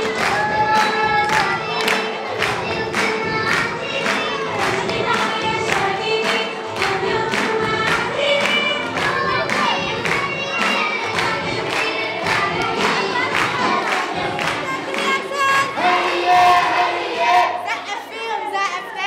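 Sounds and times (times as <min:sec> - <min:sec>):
group of voices singing: 0:00.0 - 0:18.1
steady beat: 0:06.8 - 0:16.8.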